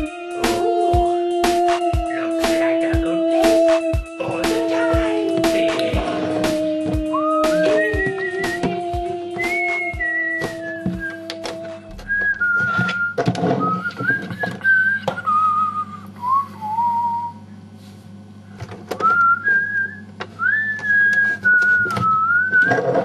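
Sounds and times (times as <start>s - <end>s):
man whistling a tune: 7.1s - 8.8s, 9.4s - 17.4s, 19.0s - 22.8s.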